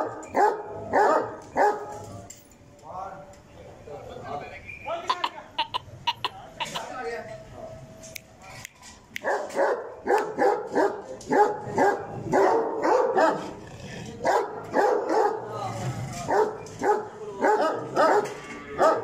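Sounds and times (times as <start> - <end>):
dog barking: 0.0 - 2.0, 9.2 - 13.6, 14.2 - 15.5, 16.3 - 19.0.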